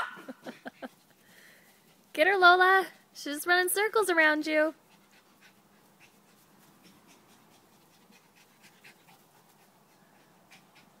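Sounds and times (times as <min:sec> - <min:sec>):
dog panting: 0:00.5 - 0:02.2, 0:04.7 - 0:11.0.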